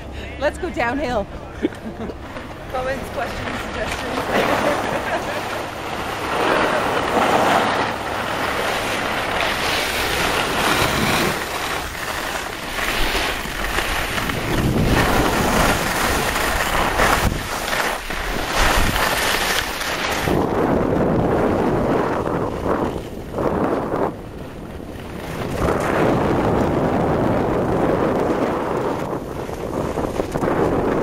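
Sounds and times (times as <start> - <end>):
wind rushing over microphone: 2.6 - 31.0
skis hissing over snow: 3.8 - 24.1.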